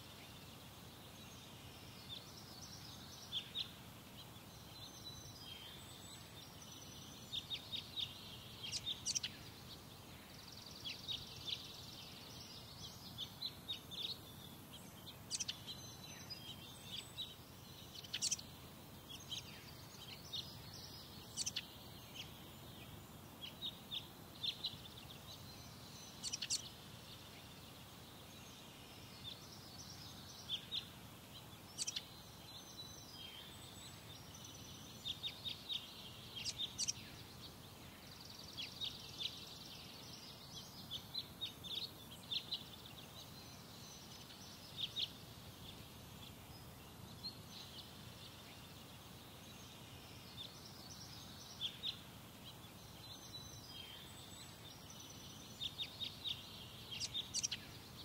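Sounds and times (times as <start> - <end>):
birds chirping: 0.0 - 58.0.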